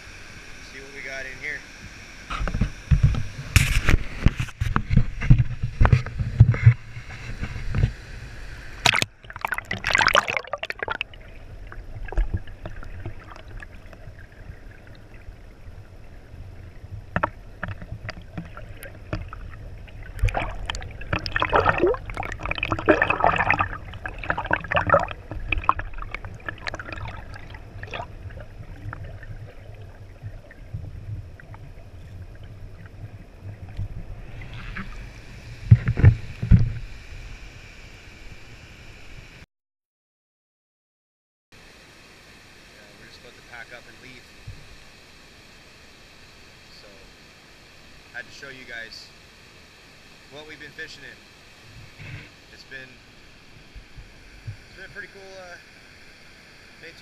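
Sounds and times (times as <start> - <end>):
underwater bubbling: 4.0 - 37.2
muffled underwater sloshing: 8.7 - 37.0
splash into water: 8.8 - 11.3, 20.1 - 29.8.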